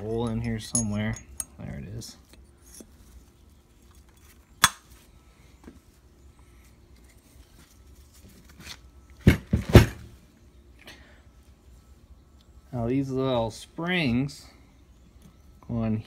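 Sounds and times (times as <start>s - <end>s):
metal clinks and knocks: 0.0s - 1.6s.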